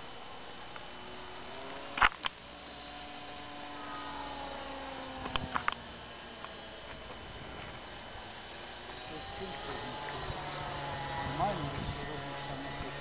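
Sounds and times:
model plane motor whining: 0.0s - 13.0s.

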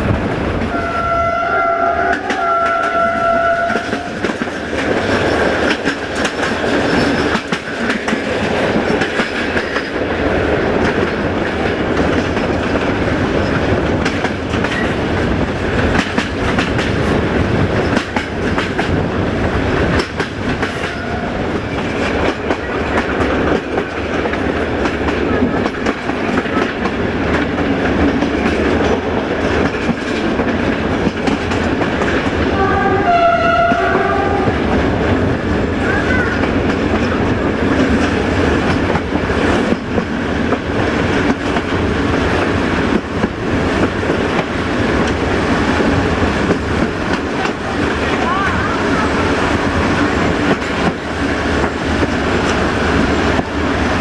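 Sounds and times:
train rumbling: 0.0s - 54.0s
train horn: 0.7s - 4.3s, 20.8s - 21.5s, 32.5s - 34.9s
wheels clicking over rail joints: 2.1s - 32.7s.

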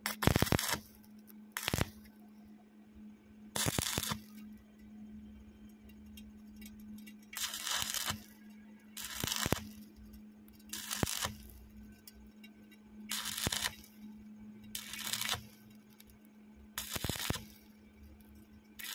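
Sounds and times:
welding arc crackling: 0.0s - 1.0s, 1.6s - 2.1s, 3.6s - 4.3s, 7.3s - 8.3s, 9.0s - 10.0s, 10.7s - 11.8s, 13.1s - 14.0s, 14.8s - 16.2s, 16.8s - 17.7s
steady low hum: 0.0s - 18.9s.

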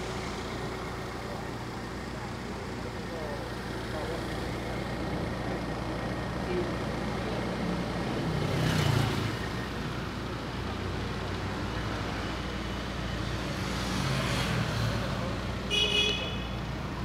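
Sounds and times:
road traffic rumble: 0.0s - 17.0s
vehicle passing by: 7.5s - 9.6s.

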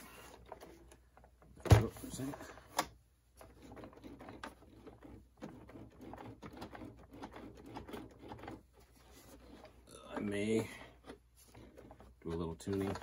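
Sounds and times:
hands rubbing plastic and rubber: 3.4s - 13.0s.

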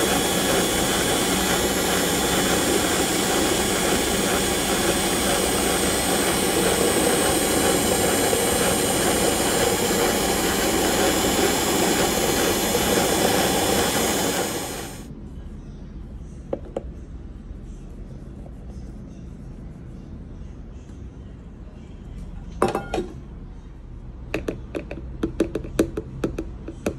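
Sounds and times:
electric mixer whirring: 0.0s - 15.1s.

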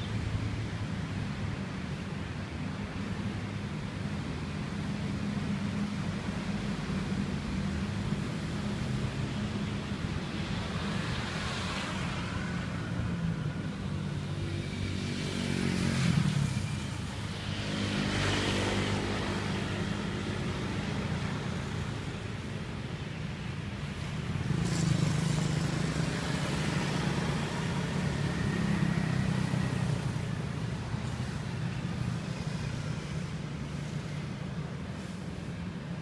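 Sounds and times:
cars passing: 0.0s - 36.0s
motorcycles passing: 8.6s - 36.0s.

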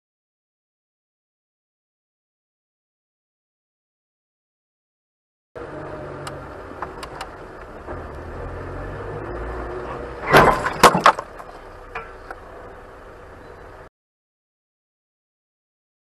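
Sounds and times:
engine and road rumble: 5.6s - 13.9s
car collision knocks and cracks: 10.2s - 12.2s.

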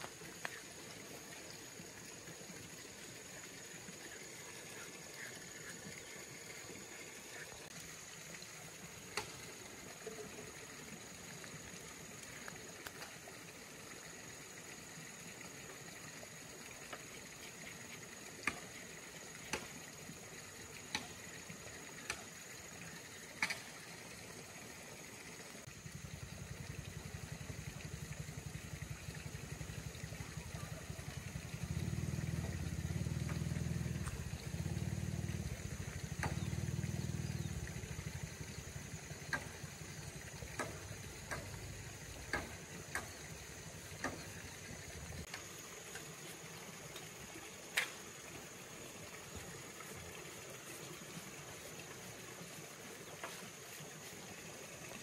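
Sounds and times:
engine humming: 25.7s - 45.3s.

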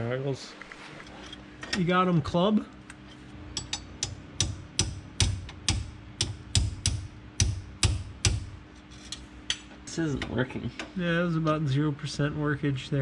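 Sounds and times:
faint steady hum: 0.0s - 13.0s.

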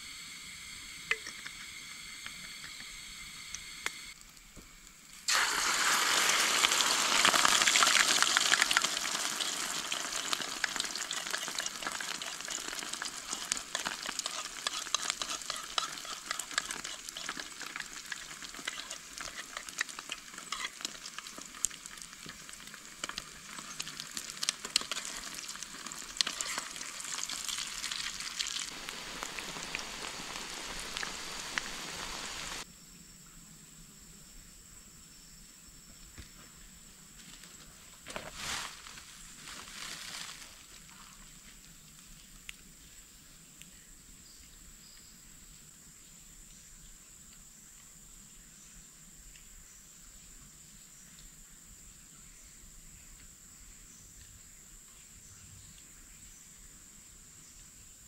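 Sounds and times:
eggs sizzling in oil: 4.9s - 32.6s.

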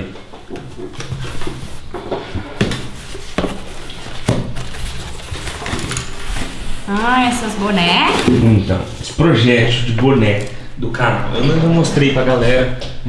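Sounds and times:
cardboard cracking: 2.8s - 6.6s.

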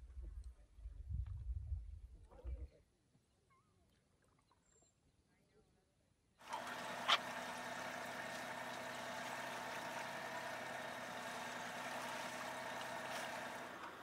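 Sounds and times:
water noise: 6.4s - 13.9s
boat engine running: 6.4s - 14.0s.

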